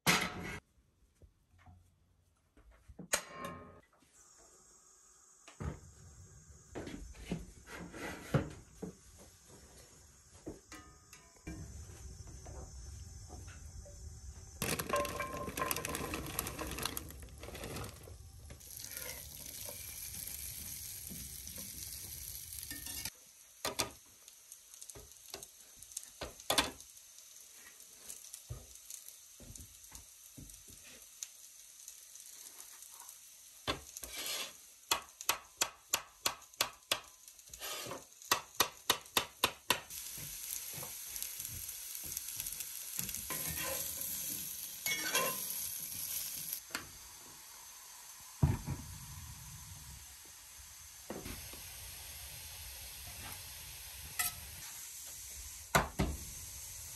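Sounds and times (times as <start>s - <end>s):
butter sizzling in skillet: 14.0s - 56.9s
potatoes sizzling: 14.0s - 56.9s
metal spatula stirring: 34.0s - 34.6s, 43.3s - 44.0s, 44.8s - 45.5s.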